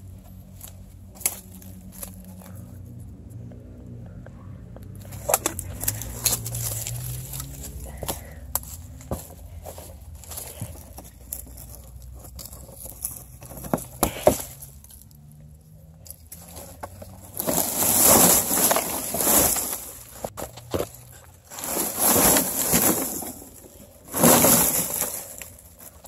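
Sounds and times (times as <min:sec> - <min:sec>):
brush rustling and scraping: 0:00.0 - 0:02.8, 0:05.0 - 0:15.2, 0:16.0 - 0:26.0.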